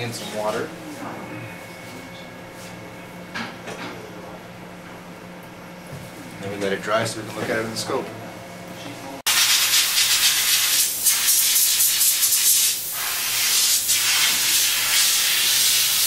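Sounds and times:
air nozzle hissing: 9.3 - 16.0.

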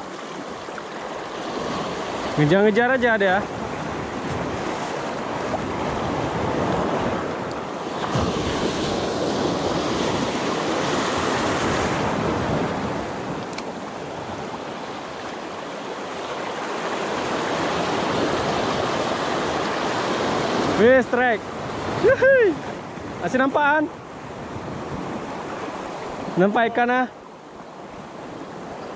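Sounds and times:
waves breaking on rocks: 0.0 - 22.0.

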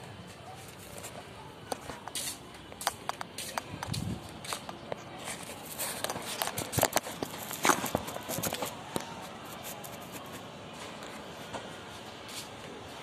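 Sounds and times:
footsteps scuffing and clicking: 0.2 - 12.8.

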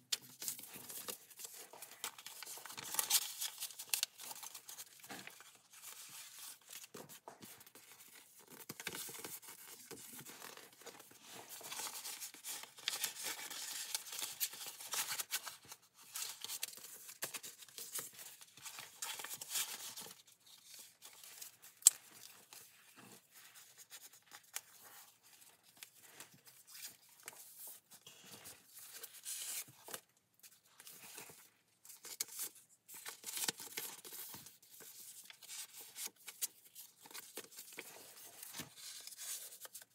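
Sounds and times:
paper rustling and crinkling: 0.0 - 39.9.

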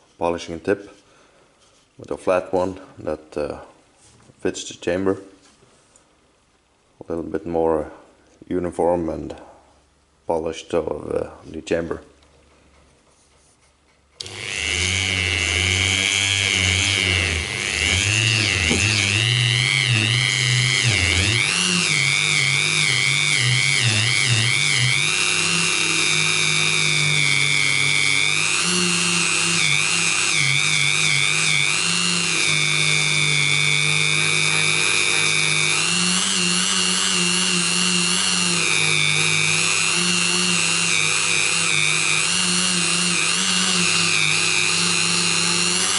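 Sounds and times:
rotary tool whining: 14.2 - 45.9.

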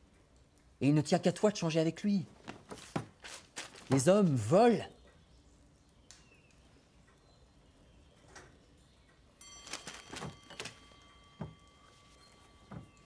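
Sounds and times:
faint high steady tone: 8.8 - 13.0
soft clicks and knocks: 12.6 - 13.0.

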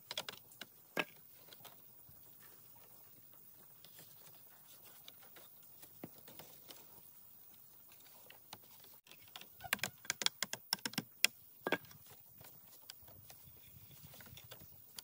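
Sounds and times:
bamboo strips clicking and knocking: 0.0 - 1.8, 8.0 - 13.4.

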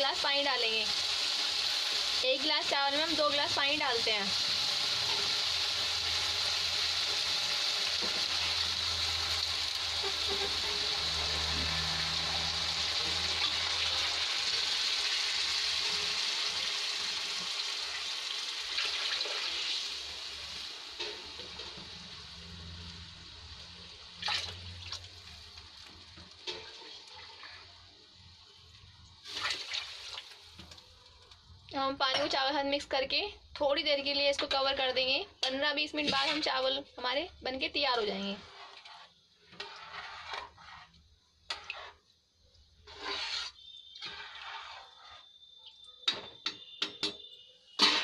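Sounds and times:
rice frying in oil: 0.0 - 32.9, 33.8 - 48.0
water rushing into hot oil: 0.7 - 27.8, 29.2 - 30.8, 38.4 - 42.1, 42.8 - 46.6.

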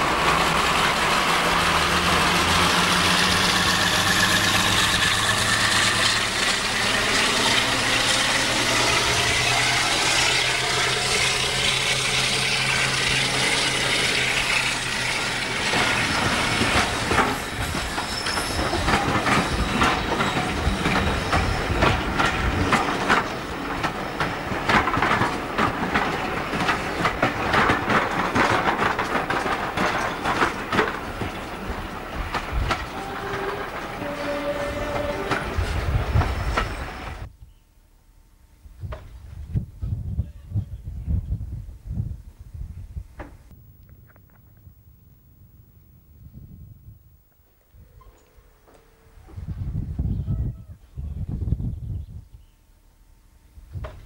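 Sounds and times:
diesel locomotive engines running: 0.0 - 37.3, 43.5 - 50.1
train wheels clacking over rail joints: 0.0 - 37.3.

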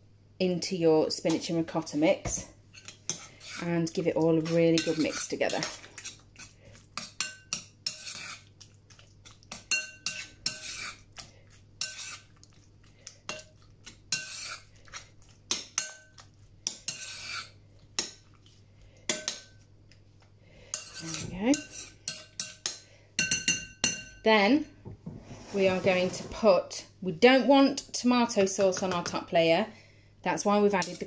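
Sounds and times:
metal spoon clinking in ceramic bowl: 7.0 - 8.2, 9.5 - 10.9, 15.5 - 16.2, 20.7 - 24.2, 30.8 - 31.0.

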